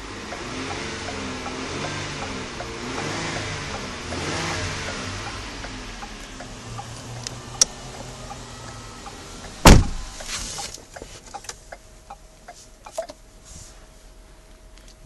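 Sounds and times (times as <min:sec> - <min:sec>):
car engine idling: 0:00.0 - 0:13.4
car door shutting: 0:06.7 - 0:11.5.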